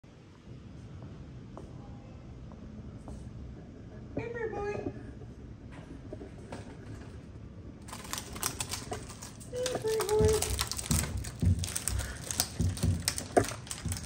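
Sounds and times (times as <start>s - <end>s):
dog claws scrabbling on floor: 7.8s - 14.0s.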